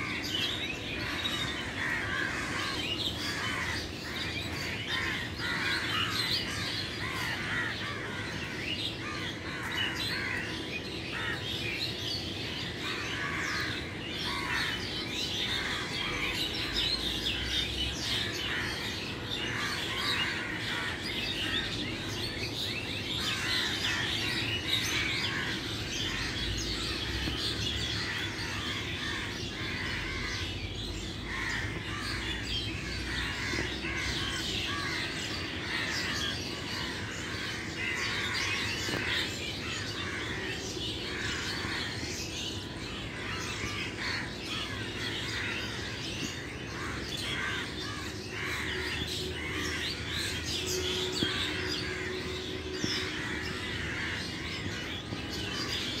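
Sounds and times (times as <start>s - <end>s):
birds chirping and twittering: 0.0s - 56.0s.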